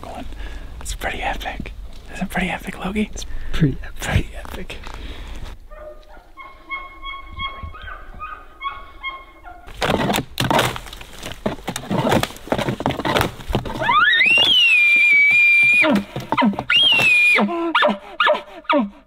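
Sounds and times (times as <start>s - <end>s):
distant elk calls: 6.2s - 9.7s
rough knocks and scrapes: 9.7s - 14.5s.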